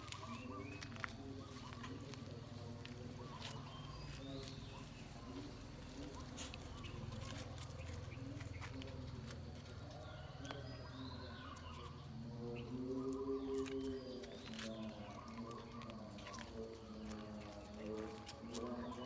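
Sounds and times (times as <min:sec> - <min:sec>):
puppies growling: 0:00.0 - 0:19.0.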